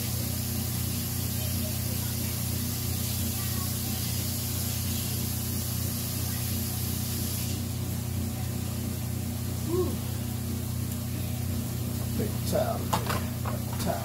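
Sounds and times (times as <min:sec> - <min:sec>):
tap running: 0:12.0 - 0:14.0.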